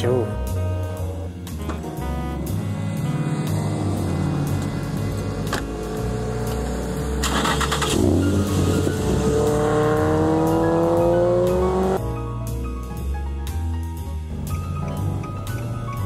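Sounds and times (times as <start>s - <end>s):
background music: 0.0s - 16.0s
car engine accelerating: 0.9s - 12.0s.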